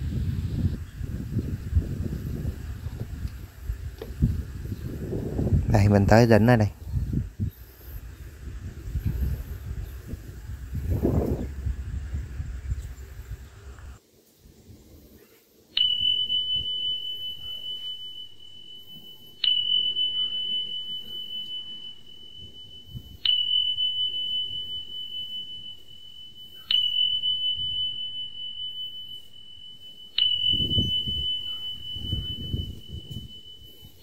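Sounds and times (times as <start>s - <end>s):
bell-like tone ringing: 0.8s - 13.7s, 15.8s - 34.0s
low rumbling: 6.7s - 14.0s.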